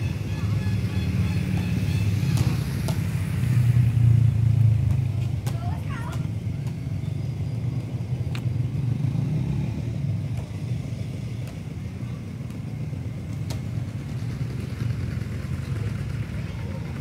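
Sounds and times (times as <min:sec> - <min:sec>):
engine idling: 0:11.0 - 0:17.0.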